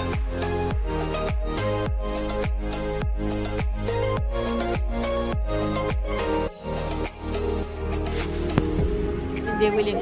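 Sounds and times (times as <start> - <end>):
held chord and bass tones: 0.0 - 10.0
deep kick drum beat: 8.6 - 9.0.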